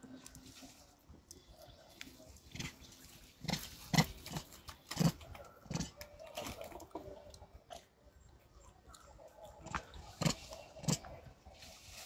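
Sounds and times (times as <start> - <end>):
monkey biting and chewing: 3.4 - 6.6, 8.6 - 11.2.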